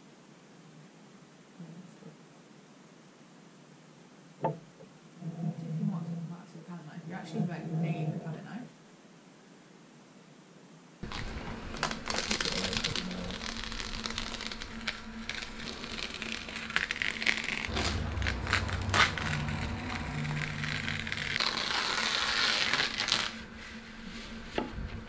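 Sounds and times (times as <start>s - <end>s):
masking tape peeling off paper: 11.0s - 24.3s.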